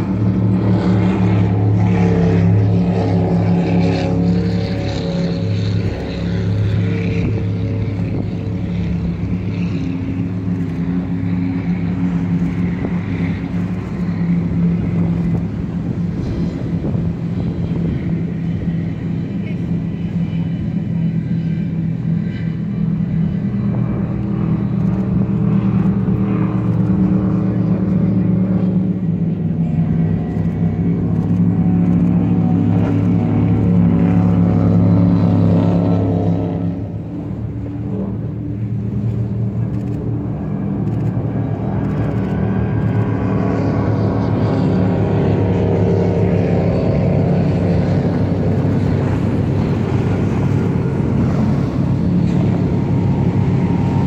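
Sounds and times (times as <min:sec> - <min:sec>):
powerboat engines droning: 0:00.0 - 0:54.0.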